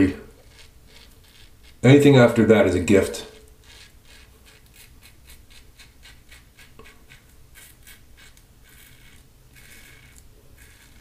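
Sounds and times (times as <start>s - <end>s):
razor scraping stubble: 0.0s - 11.0s.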